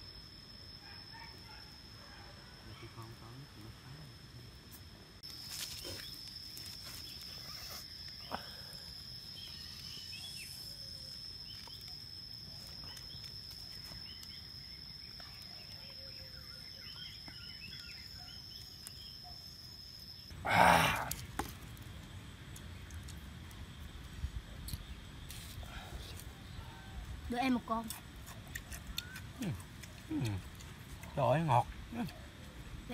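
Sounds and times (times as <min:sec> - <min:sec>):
high insect drone: 0:00.0 - 0:32.9
wood fire crackling: 0:04.7 - 0:16.4, 0:20.3 - 0:32.9.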